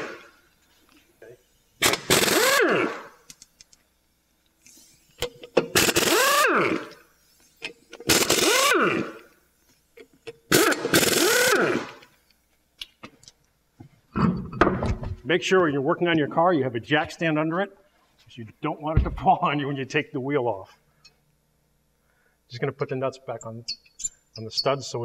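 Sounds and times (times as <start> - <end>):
pneumatic impact wrench hammering: 1.8 - 3.4, 5.1 - 9.3, 10.2 - 12.1.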